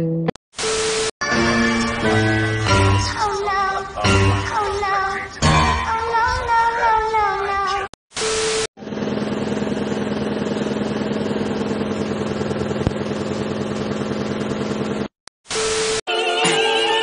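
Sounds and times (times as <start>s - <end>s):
car engine running: 8.8s - 15.1s.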